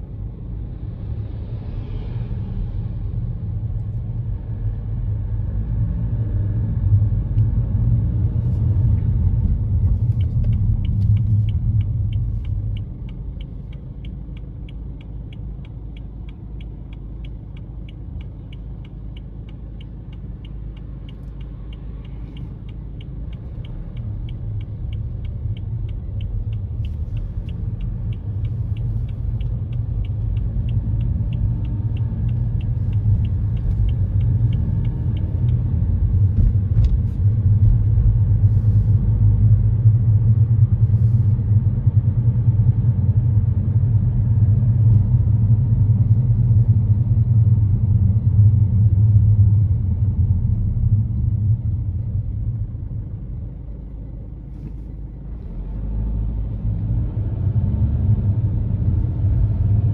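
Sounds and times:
car road and engine rumble: 0.0 - 59.9
turn signal clicking: 8.4 - 39.5.

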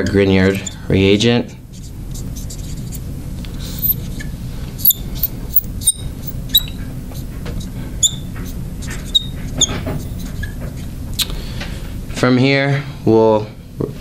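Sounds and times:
marker squeaking on glass: 0.5 - 0.8, 1.7 - 3.0, 3.7 - 6.8, 8.0 - 10.9
low hum: 1.5 - 8.1
scratchy marker strokes: 1.7 - 4.2, 4.8 - 6.7.

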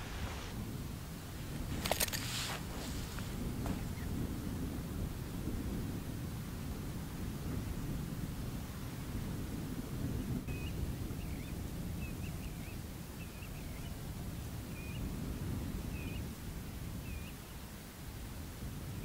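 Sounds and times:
steady low rumble: 0.0 - 12.7.

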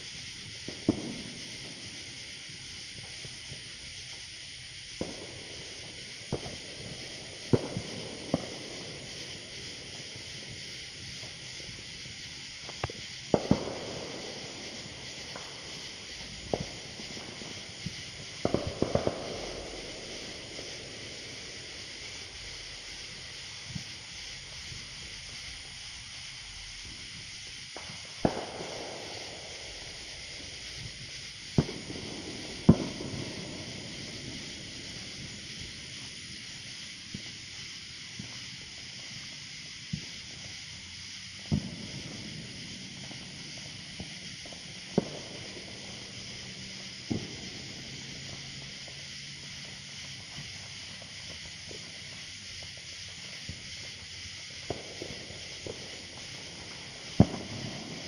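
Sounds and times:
firecrackers banging: 0.0 - 58.0
steady high hiss: 0.0 - 58.0.

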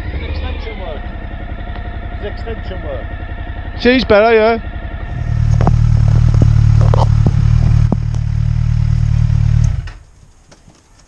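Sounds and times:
motorcycle engine idling: 0.0 - 10.1
sharp clicks and knocks: 5.2 - 8.5.

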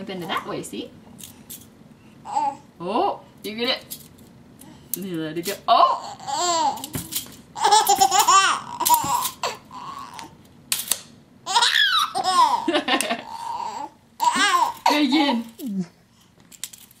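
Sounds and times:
baby laughing: 5.9 - 7.0, 7.6 - 10.3, 11.5 - 15.1.

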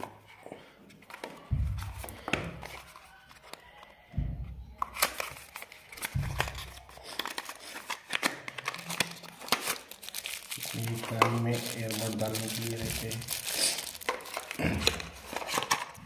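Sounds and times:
paper rustling: 5.0 - 16.0.

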